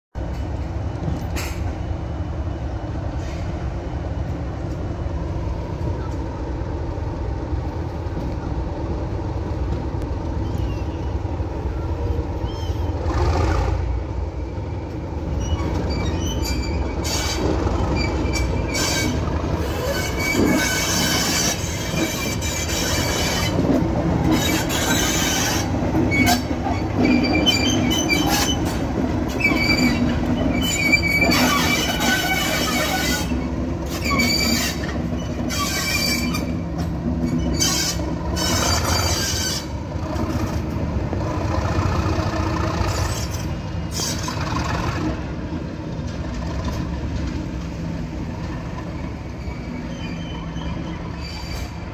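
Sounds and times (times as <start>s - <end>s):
diesel locomotive engine: 0.1s - 51.9s
wheels squealing on track: 15.3s - 23.6s, 24.3s - 40.4s, 42.8s - 45.0s, 48.7s - 51.9s.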